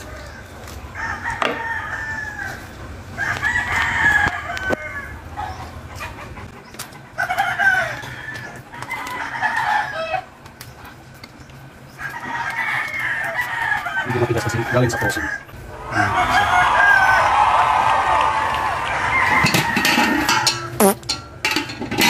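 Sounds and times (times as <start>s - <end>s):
roosters crowing: 0.0s - 10.4s, 11.8s - 20.6s.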